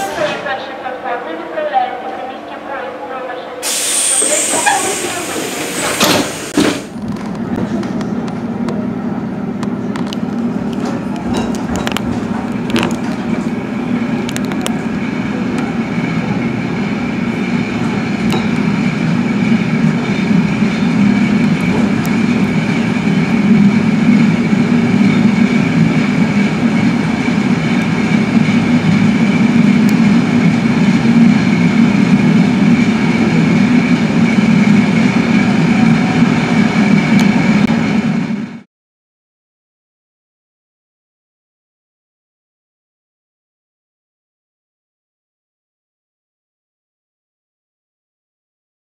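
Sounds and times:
train wheels rumbling on rails: 0:03.6 - 0:38.6.

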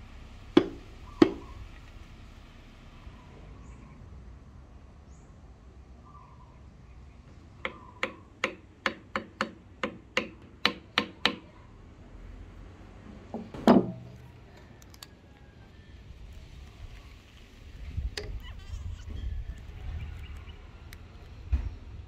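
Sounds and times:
hammer knocking wedge into axe: 0:00.6 - 0:01.5, 0:13.4 - 0:14.1
heavy thump: 0:13.4 - 0:14.1.

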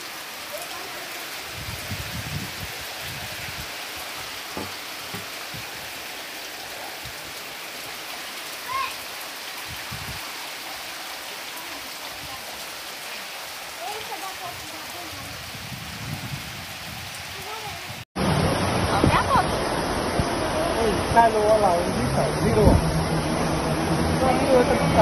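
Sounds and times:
heavy rain pouring: 0:00.0 - 0:25.0
wind rumbling on microphone: 0:01.4 - 0:05.9, 0:09.6 - 0:10.3, 0:14.4 - 0:21.2, 0:22.1 - 0:25.0.

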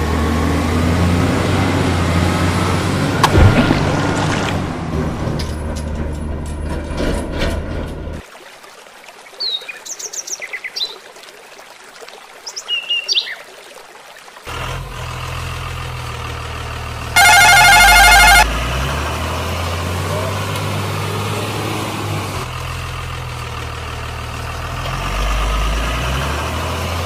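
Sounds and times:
truck splashing through water: 0:00.0 - 0:06.1, 0:14.2 - 0:27.0
stream water rushing: 0:08.2 - 0:22.4
birds chirping: 0:12.4 - 0:13.5
low truck engine hum: 0:14.5 - 0:27.0
loud horn blast: 0:17.2 - 0:18.6.

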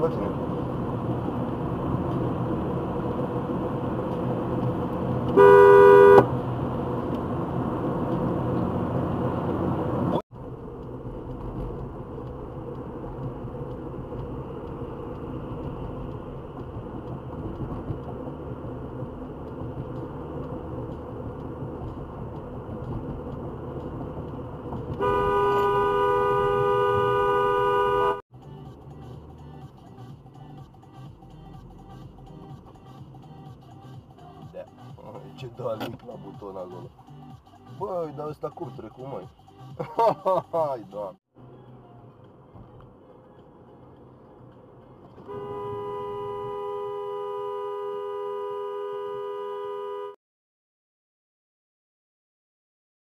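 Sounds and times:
road and engine noise in car: 0:00.0 - 0:50.2
car horn blast: 0:05.3 - 0:06.3, 0:25.0 - 0:28.2, 0:45.2 - 0:50.2.

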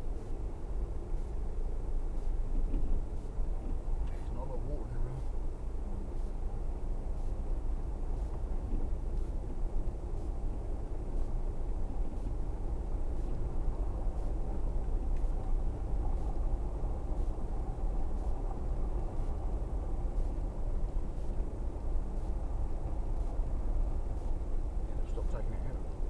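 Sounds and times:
car engine and tyres rumbling: 0:00.0 - 0:26.0.

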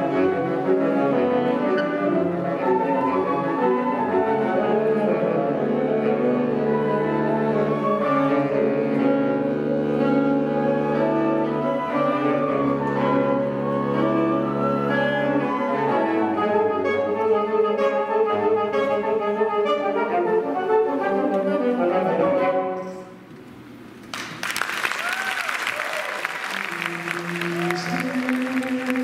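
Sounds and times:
flute: 0:00.0 - 0:23.1
saxophones: 0:00.0 - 0:23.2.

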